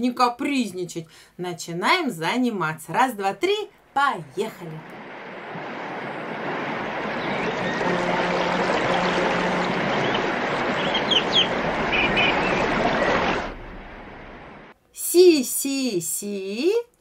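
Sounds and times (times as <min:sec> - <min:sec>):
rushing water: 0:04.4 - 0:14.8
birds chirping: 0:04.9 - 0:14.6.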